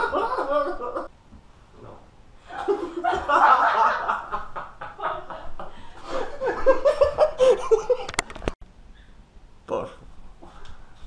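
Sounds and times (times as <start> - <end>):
men laughing hard: 0.0 - 1.1, 2.5 - 8.2.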